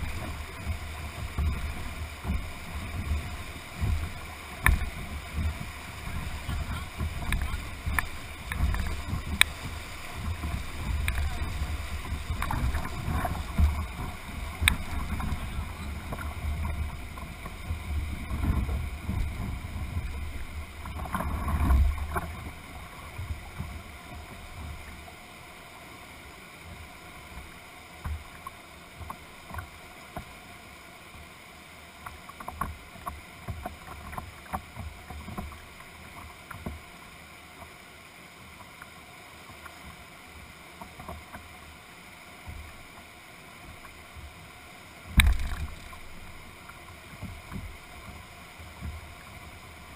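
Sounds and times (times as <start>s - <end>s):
water slapping against hull: 0.0s - 25.0s, 45.0s - 49.9s
whitewater rapids rushing: 0.0s - 32.0s, 32.6s - 49.9s.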